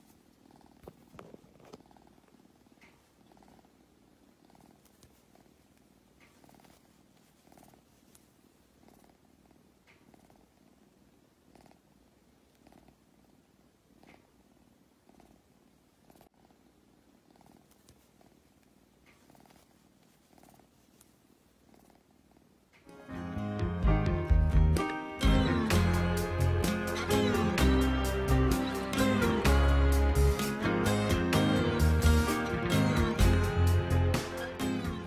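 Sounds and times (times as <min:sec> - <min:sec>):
kitten purring: 0:00.0 - 0:22.8.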